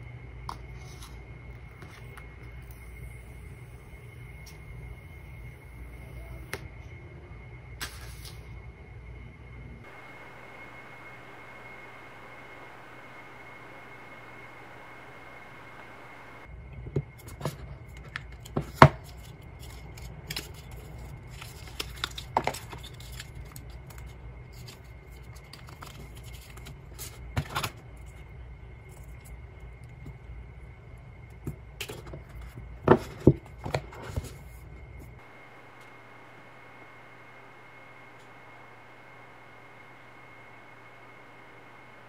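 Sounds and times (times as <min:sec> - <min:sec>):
low steady hum: 0:00.0 - 0:42.0.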